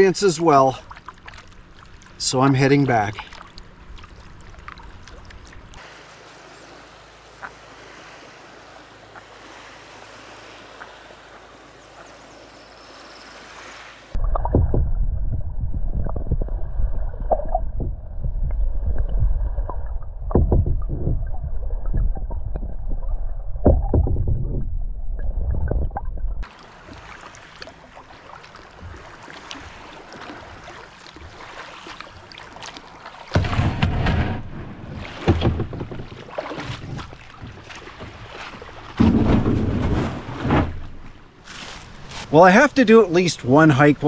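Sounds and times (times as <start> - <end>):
kayak paddle splashing water: 0.0 - 14.8, 26.4 - 42.4
muffled underwater sloshing: 0.0 - 43.9
dull underwater knocks: 14.2 - 22.8, 23.6 - 24.8, 33.3 - 41.1.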